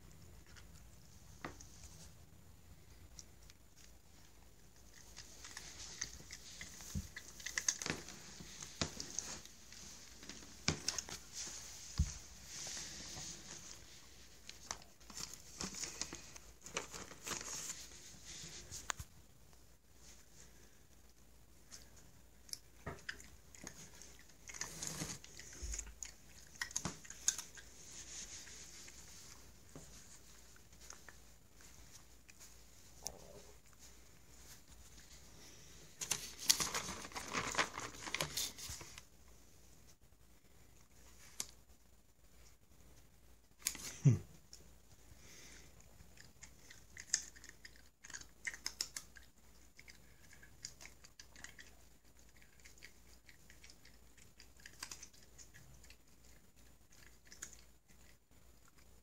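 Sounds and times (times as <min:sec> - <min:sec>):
cat crunching treats: 0:03.1 - 0:11.2, 0:21.6 - 0:27.9, 0:45.9 - 0:59.0.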